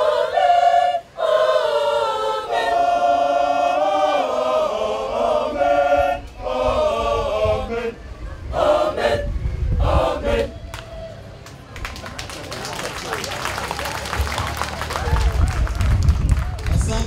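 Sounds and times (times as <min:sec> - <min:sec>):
women's choir singing: 0:00.0 - 0:10.6.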